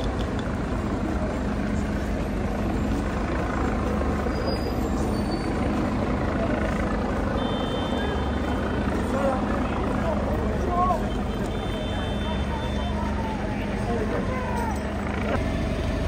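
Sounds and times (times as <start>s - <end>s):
heavy vehicle engine humming: 0.0s - 16.0s.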